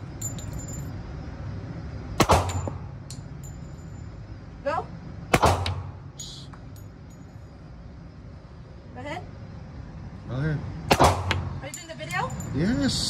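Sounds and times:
pistol shots with reverberation: 2.2s - 2.9s, 5.3s - 6.0s, 10.9s - 11.5s.

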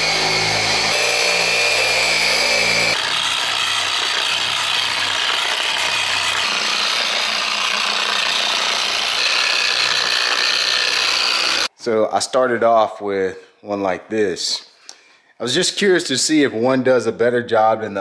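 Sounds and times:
electric polisher motor whine: 0.0s - 11.7s.

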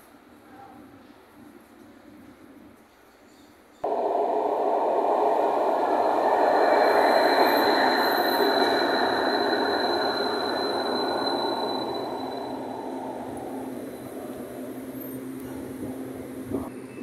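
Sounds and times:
thin high whine: 3.8s - 16.7s
tram wheels rumbling on rails: 3.8s - 17.0s.

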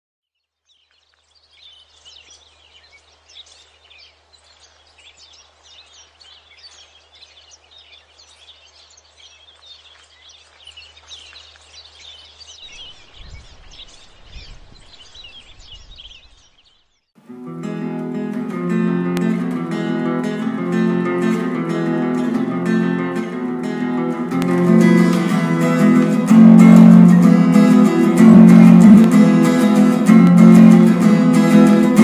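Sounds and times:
small birds chirping: 0.3s - 17.2s.

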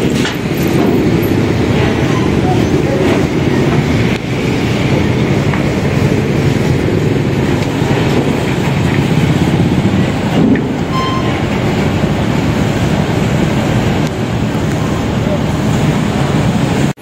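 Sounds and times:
low engine rumble: 0.0s - 17.0s
faint beep: 10.9s - 11.4s.

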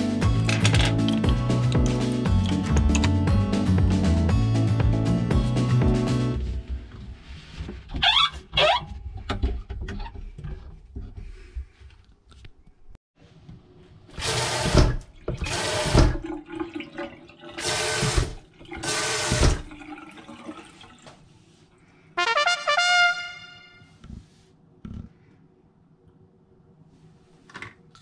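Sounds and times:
water gushing from faucet: 14.2s - 21.1s.

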